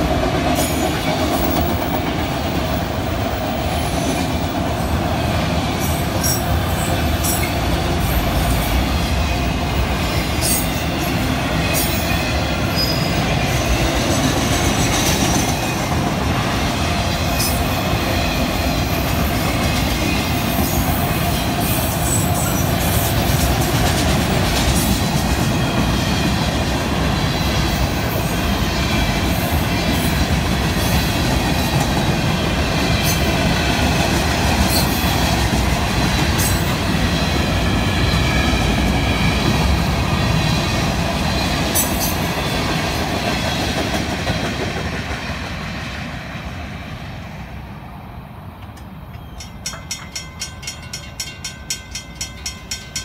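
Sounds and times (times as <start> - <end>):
freight train rolling past: 0.0 - 53.0
wheels clicking over rail joints: 48.6 - 53.0
crossing warning bell ringing: 49.0 - 53.0.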